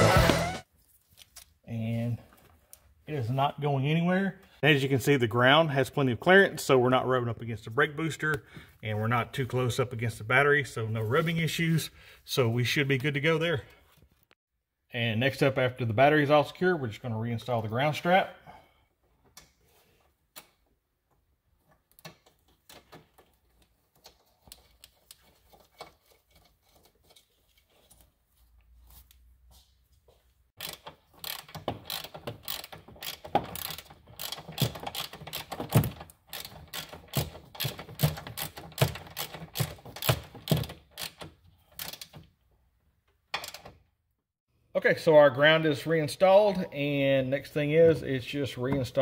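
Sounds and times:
ratchet wrench clicking: 0:30.6 - 0:42.1.

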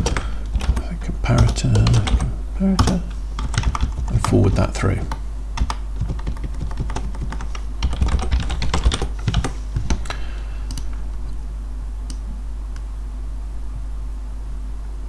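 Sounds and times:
computer keyboard typing: 0:00.0 - 0:10.9
steady low hum: 0:00.0 - 0:15.0.

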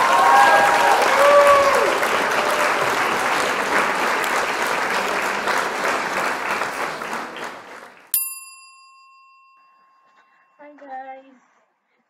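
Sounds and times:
applause: 0:00.0 - 0:08.2
bright bell ding: 0:08.2 - 0:10.8.

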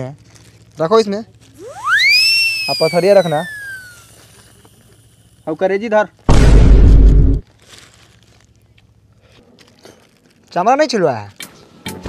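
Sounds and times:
plastic bag crinkling: 0:00.0 - 0:05.2, 0:07.4 - 0:11.0
low hum: 0:06.3 - 0:07.4.

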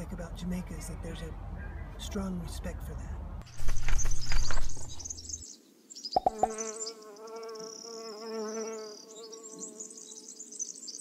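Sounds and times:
birds chirping: 0:00.6 - 0:07.1
bee buzzing: 0:06.2 - 0:09.9.

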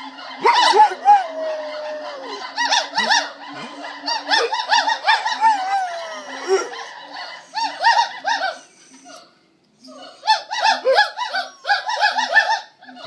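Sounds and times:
gibbons whooping: 0:00.0 - 0:09.2
dog howling: 0:00.3 - 0:07.0.

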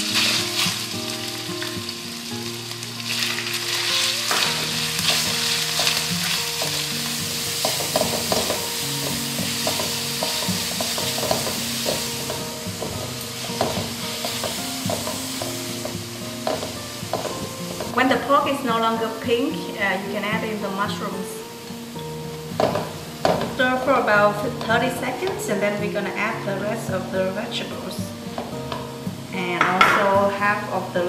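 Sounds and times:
meat sizzling in a wok: 0:00.0 - 0:31.0
spatula clicking and scraping a wok: 0:04.2 - 0:18.0.

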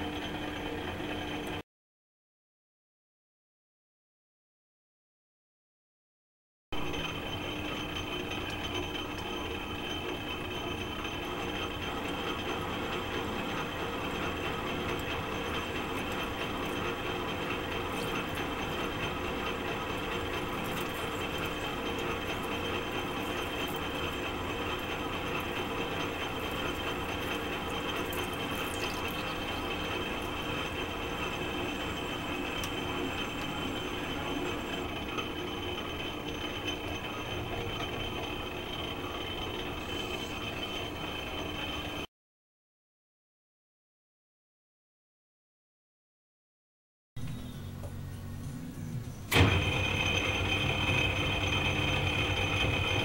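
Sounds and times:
metal lathe cutting grooves: 0:06.8 - 0:42.1, 0:49.3 - 0:53.0.

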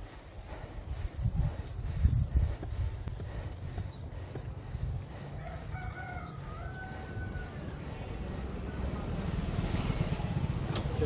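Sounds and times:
steady low rumble: 0:00.0 - 0:11.0
rooster crowing: 0:05.3 - 0:07.8.

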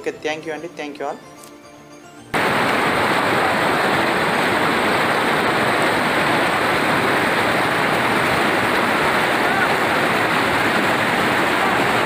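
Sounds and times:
waterfall rushing: 0:02.4 - 0:12.0.

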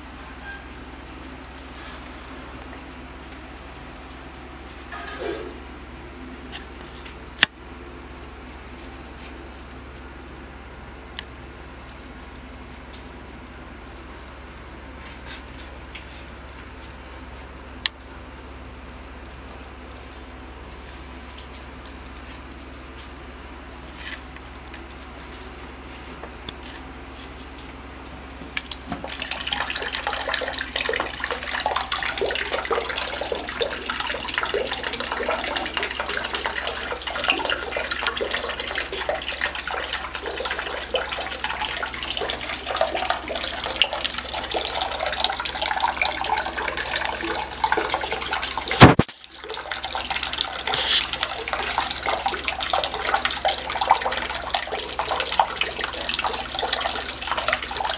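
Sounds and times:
low steady hum: 0:00.0 - 0:57.9
sharp click: 0:48.8 - 0:49.1.

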